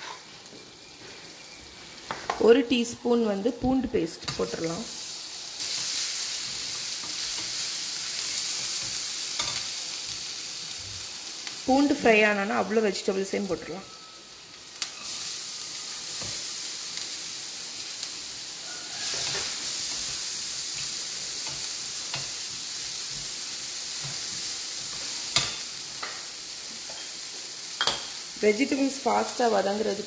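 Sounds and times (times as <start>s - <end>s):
vegetables sizzling in a frying pan: 0.0s - 30.0s.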